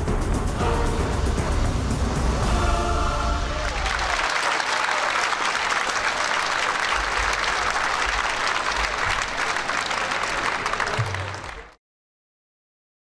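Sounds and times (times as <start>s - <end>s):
audience applauding: 3.6s - 11.8s.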